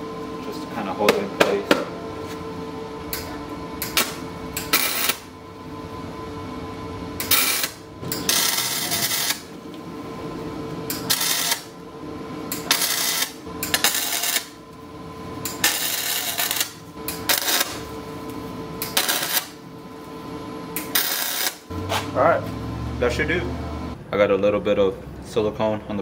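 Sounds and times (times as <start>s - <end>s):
crackling welding arc: 3.8s - 5.3s, 7.2s - 9.5s, 10.9s - 11.7s, 12.5s - 14.6s, 15.5s - 18.0s, 18.8s - 19.6s, 20.8s - 22.0s.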